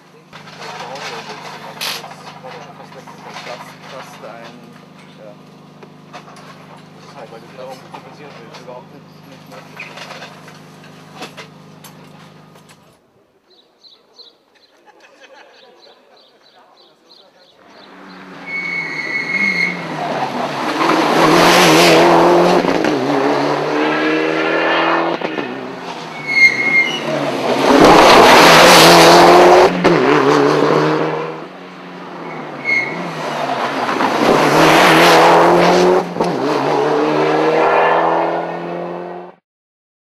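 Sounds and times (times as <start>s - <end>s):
rally car engine passing at speed: 17.6s - 39.4s.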